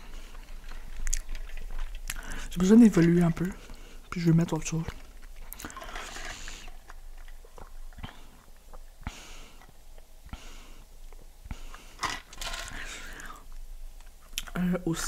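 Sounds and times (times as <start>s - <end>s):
swallowing: 0.0s - 2.6s.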